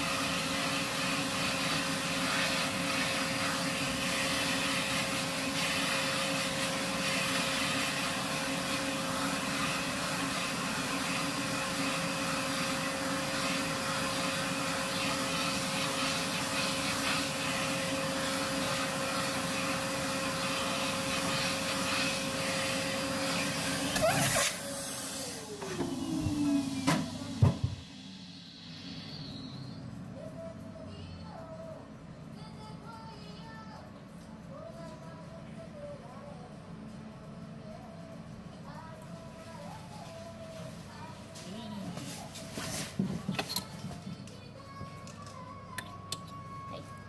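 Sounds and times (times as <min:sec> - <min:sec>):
hair vacuum motor whining: 0:00.0 - 0:29.4.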